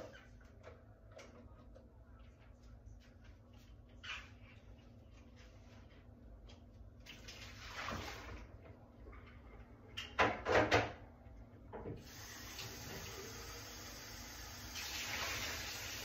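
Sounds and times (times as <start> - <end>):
running water: 12.0 - 16.0.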